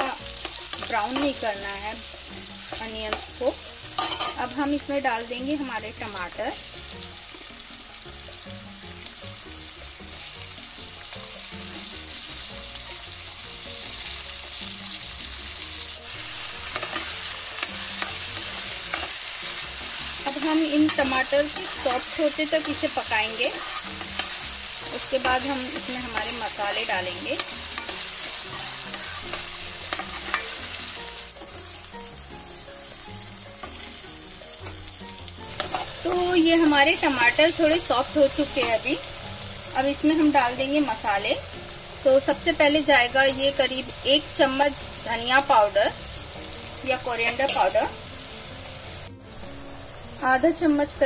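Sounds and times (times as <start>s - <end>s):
metal spoon scraping a pan: 0.0s - 4.7s, 16.1s - 31.5s, 34.6s - 39.1s
onions and tomatoes sizzling in oil: 0.0s - 51.0s.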